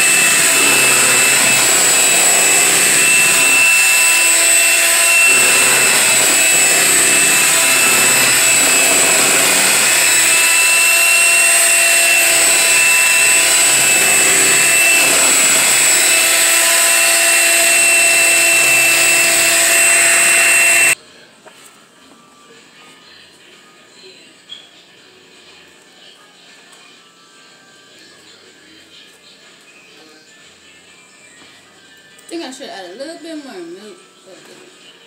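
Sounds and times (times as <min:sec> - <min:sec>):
electric hand mixer whine: 0:00.0 - 0:21.0.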